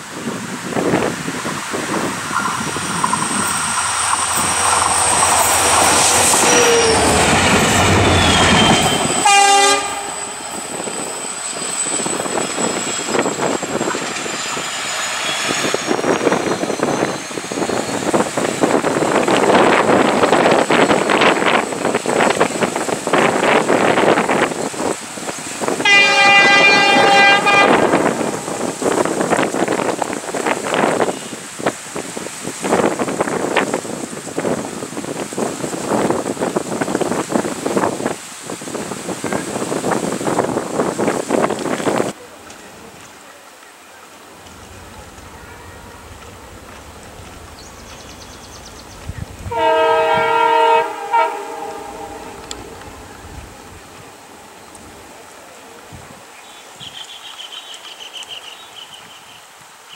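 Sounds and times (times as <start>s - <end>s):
wind buffeting microphone: 0.0s - 42.2s, 44.4s - 57.0s
locomotive horn blast: 4.3s - 11.1s, 25.8s - 28.6s, 49.4s - 53.0s.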